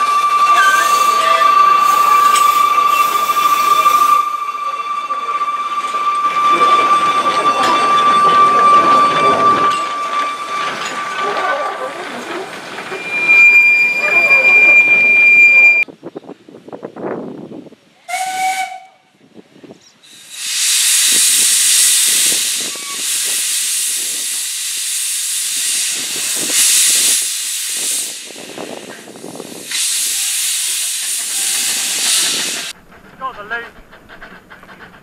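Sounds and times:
steam locomotive whistle toot: 0.0 - 12.1, 12.8 - 15.8, 18.0 - 19.0, 20.5 - 24.1
steam hissing from engine: 20.0 - 32.8.

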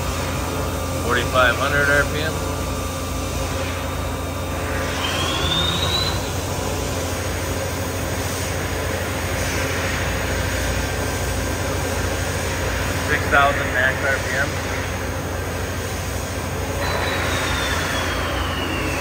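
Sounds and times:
machining center humming: 0.0 - 19.0
short rising whine: 2.2 - 7.6, 16.5 - 19.0.

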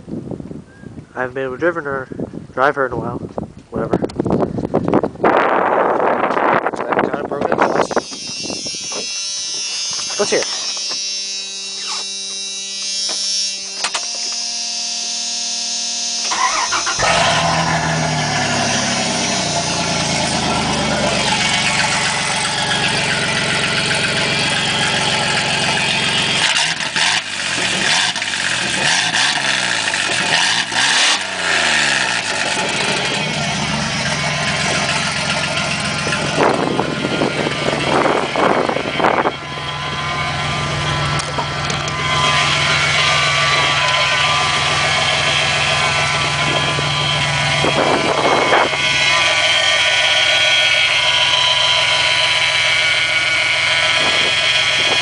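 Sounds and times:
electric buzz: 7.6 - 52.0
truck engine starting and revving: 16.1 - 55.0.

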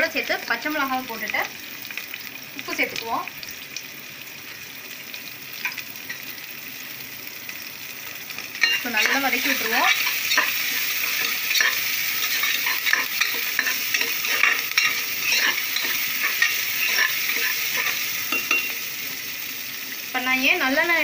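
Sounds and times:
onions sizzling in oil: 0.0 - 21.0
spoon scraping and tapping pot: 9.9 - 18.8.

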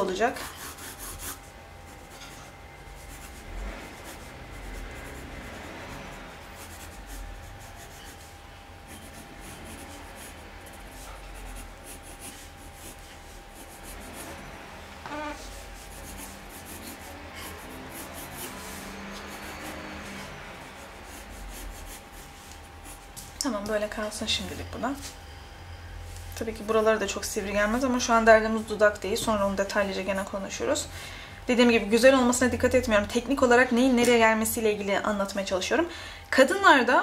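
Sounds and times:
pencil scratching on paper: 0.3 - 8.3, 8.9 - 14.4, 15.1 - 23.1.

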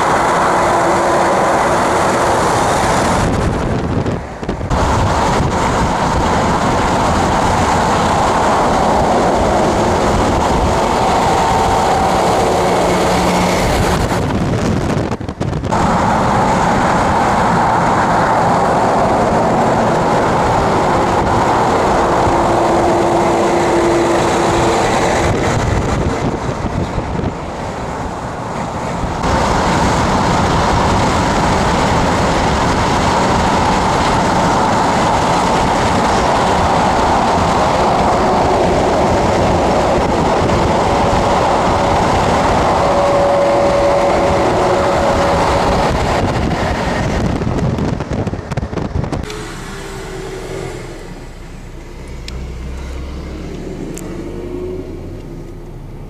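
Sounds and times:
trucks passing alongside: 0.0 - 56.0
tyres and wind rushing: 0.0 - 56.0
steady hum: 49.2 - 56.0.

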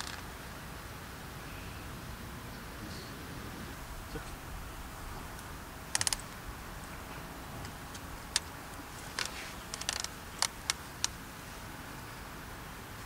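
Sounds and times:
low background hiss: 0.0 - 13.0
clicks of small hard objects: 5.9 - 6.3, 7.9 - 11.2.

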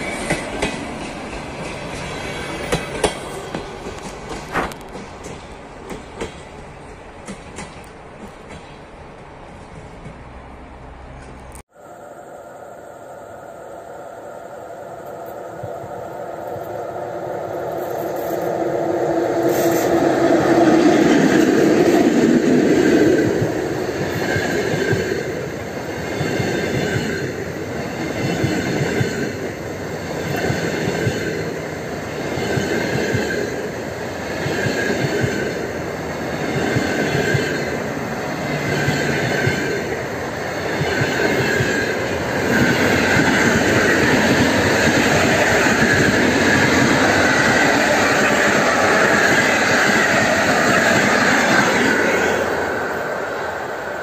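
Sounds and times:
train wheels clattering over rail joints: 0.0 - 8.9
electric locomotive rushing past: 0.0 - 54.0.

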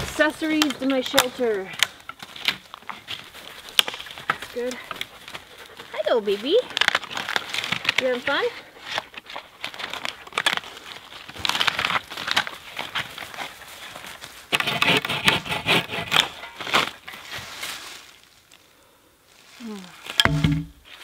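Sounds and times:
dry leaves crunching: 0.0 - 14.5, 16.6 - 21.0.

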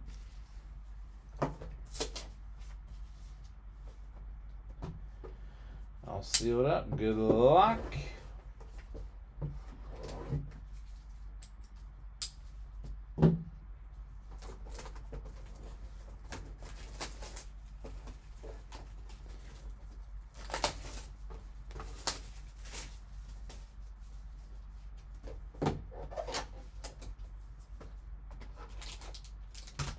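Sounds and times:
low steady hum: 0.0 - 29.9.

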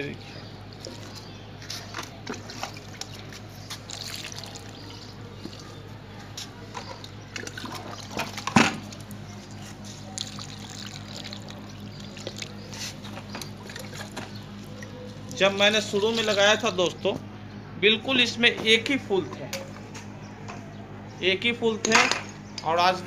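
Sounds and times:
water splashing and trickling: 0.1 - 16.8
water poured into soil: 2.4 - 5.8, 7.0 - 15.0.

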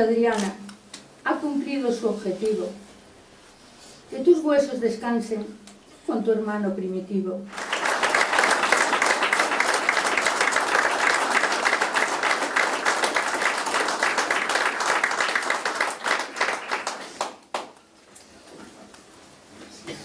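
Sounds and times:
audience applauding: 7.5 - 17.8.

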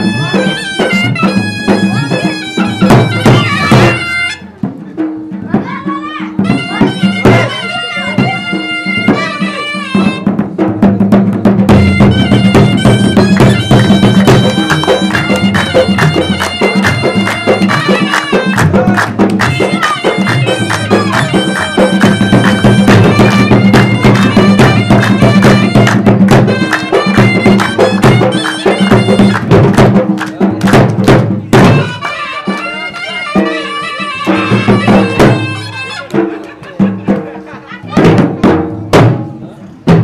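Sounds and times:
reed instrument folk melody: 0.0 - 37.7
drum strokes: 0.0 - 40.0.

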